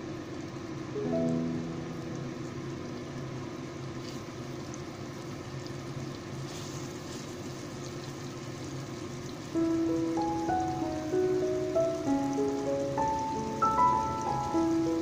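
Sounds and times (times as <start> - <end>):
music: 1.0 - 2.7, 9.6 - 15.0
paste sizzling in hot oil: 4.0 - 9.6.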